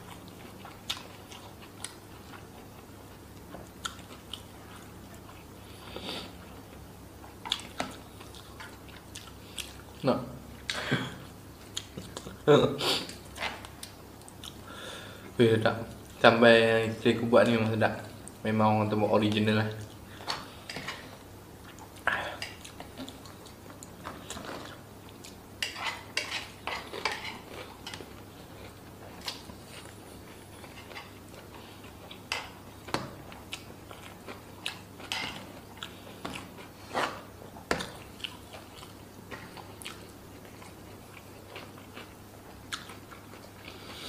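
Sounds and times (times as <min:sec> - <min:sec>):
chewing and mouth sounds: 0:00.0 - 0:05.5, 0:07.3 - 0:10.0, 0:11.6 - 0:12.4, 0:19.8 - 0:44.0.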